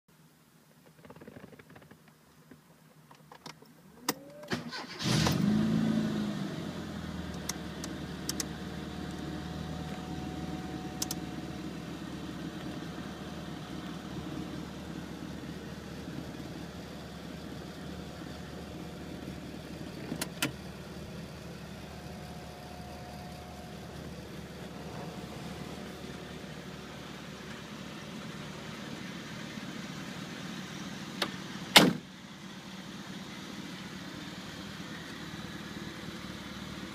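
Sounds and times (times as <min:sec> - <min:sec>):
car engine starting and idling: 0:03.5 - 0:36.9
car door shutting: 0:20.0 - 0:20.6, 0:31.2 - 0:32.1.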